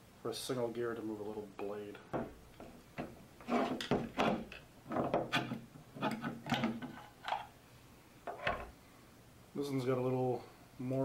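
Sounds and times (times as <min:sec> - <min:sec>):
mechanism clunking and scraping: 0:02.6 - 0:07.5, 0:08.2 - 0:08.8.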